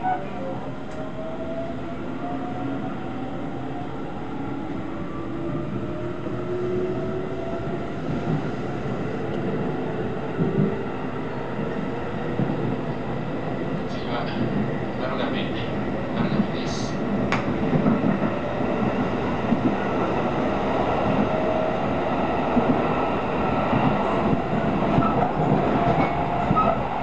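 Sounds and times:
train wheels rumbling on rails: 4.4 - 27.0.

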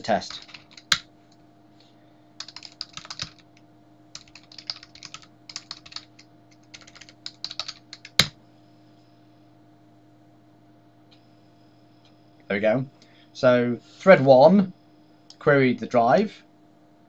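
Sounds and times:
faint steady hum: 0.0 - 17.0
typing on computer keyboard: 0.2 - 1.0, 2.4 - 3.4, 4.1 - 8.3.

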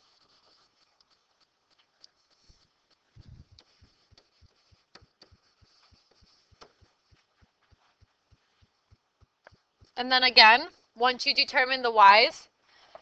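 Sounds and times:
stylus scratching: 0.0 - 10.7
stylus tapping on screen: 2.9 - 10.0.

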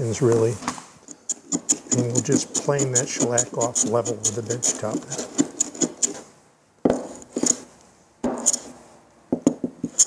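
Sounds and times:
hand plane cutting wood: 1.3 - 6.2.

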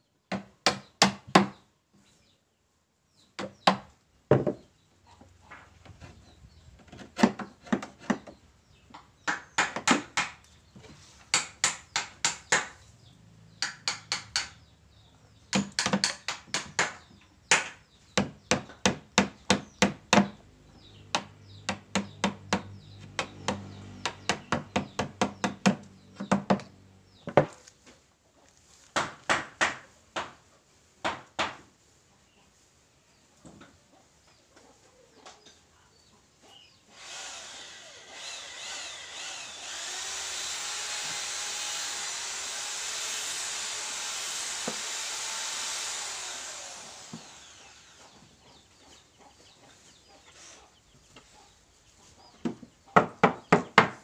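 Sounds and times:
hammer striking wood chisel: 9.2 - 10.4, 11.3 - 12.8, 13.6 - 14.6, 15.5 - 20.4, 21.1 - 26.7.

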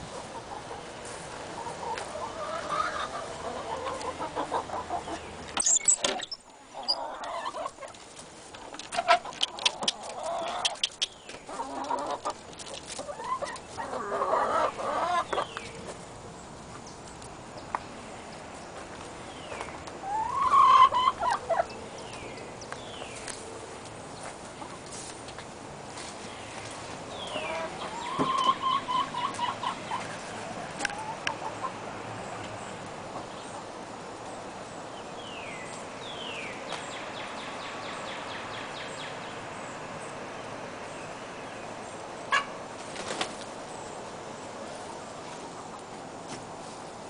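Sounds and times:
chickens clucking: 0.0 - 16.0, 19.5 - 22.5, 24.2 - 34.8, 41.8 - 46.0.

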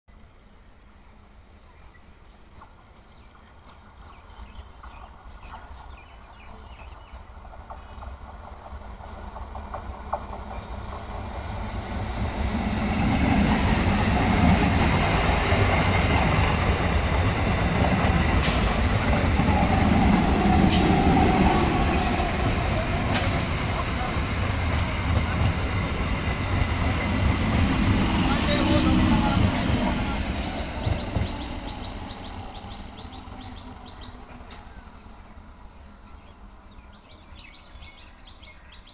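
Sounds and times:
train wheels rumbling on rails: 2.6 - 38.5
sharp clacks of train wheels: 3.6 - 34.7.

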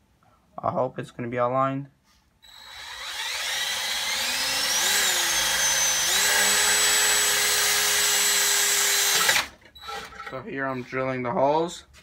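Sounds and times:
cordless drill boring metal: 2.4 - 10.4.

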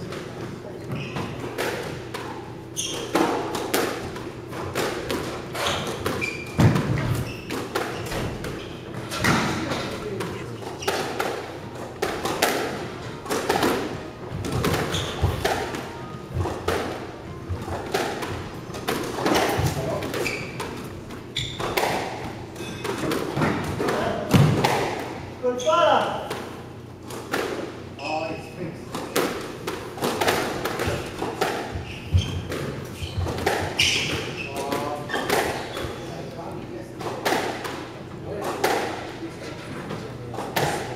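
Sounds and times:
shoe squeak: 0.8 - 1.4, 2.7 - 3.2, 5.5 - 8.9, 14.8 - 16.2, 19.8 - 20.6, 21.2 - 21.8, 25.5 - 26.0, 28.0 - 28.6, 31.8 - 36.2
racket striking ball: 3.0 - 17.0, 17.7 - 20.8, 21.6 - 25.1, 28.9 - 34.3.

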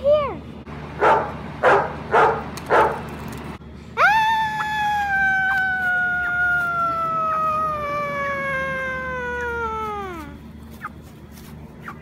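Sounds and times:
dog howling: 4.0 - 10.2.

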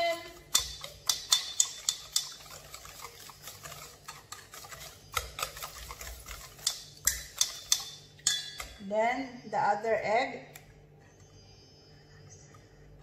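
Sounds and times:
whisk clicking against bowl: 0.0 - 8.8.

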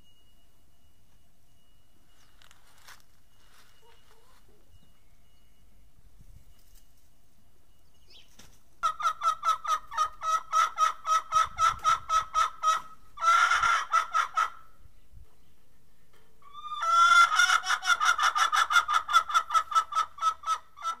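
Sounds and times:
hen clucking: 8.8 - 14.7, 16.4 - 21.0.

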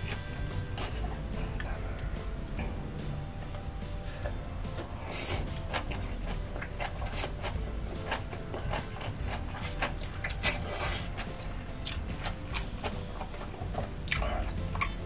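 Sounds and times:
noodles slurped and chewed: 4.7 - 15.0.

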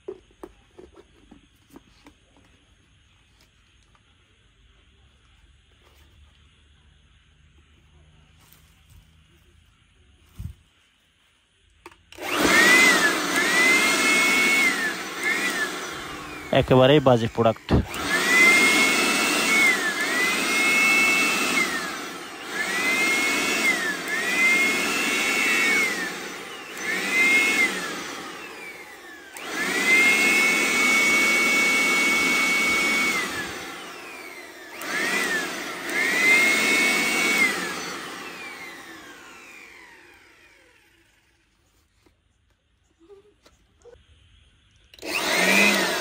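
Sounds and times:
electric blower motor whine: 11.8 - 42.1, 44.9 - 46.0.

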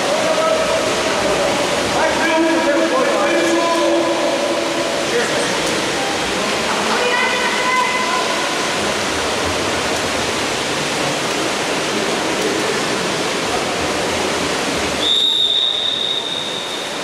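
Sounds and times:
water splashing in indoor pool: 0.0 - 17.0
referee's whistle: 15.0 - 17.0.

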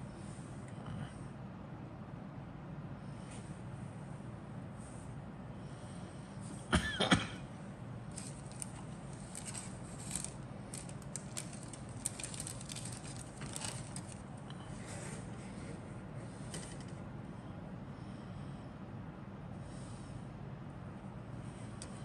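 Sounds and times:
plastic sprues clattering: 8.1 - 14.4.

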